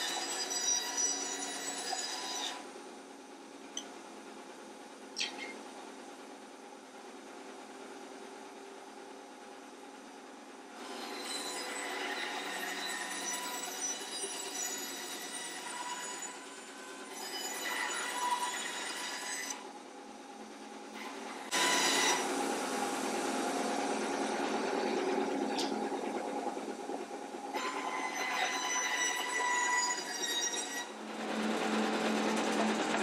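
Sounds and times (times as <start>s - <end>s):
band saw cutting wood: 21.5s - 22.4s.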